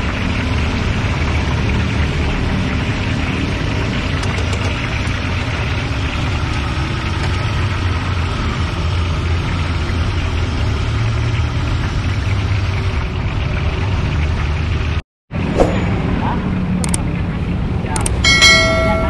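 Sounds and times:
oil sizzling in a wok: 0:00.0 - 0:15.0
low engine-like rumble: 0:00.0 - 0:19.0.

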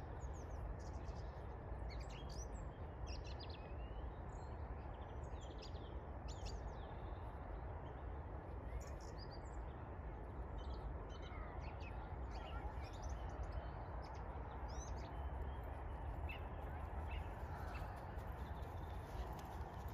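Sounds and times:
birds chirping: 0:10.7 - 0:19.9.

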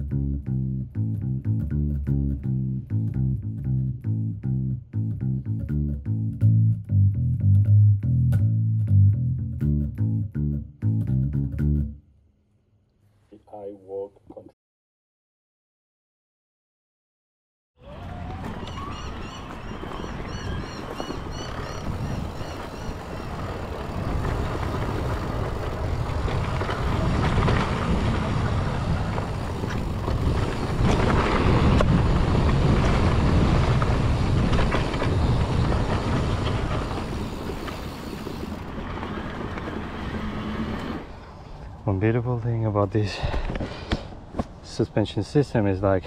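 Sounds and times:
tyres rolling over dirt: 0:17.8 - 0:41.2
wind buffeting microphone: 0:17.9 - 0:40.4.

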